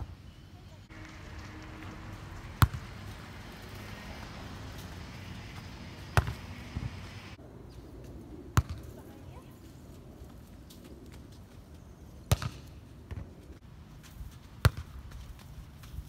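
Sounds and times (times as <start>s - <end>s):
steady outdoor hiss: 0.0s - 16.0s
volleyball smacked by hands: 12.3s - 13.2s.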